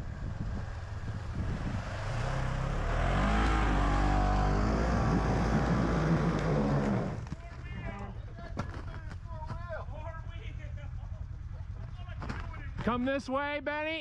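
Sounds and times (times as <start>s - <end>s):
engine revving under load: 0.0s - 7.4s.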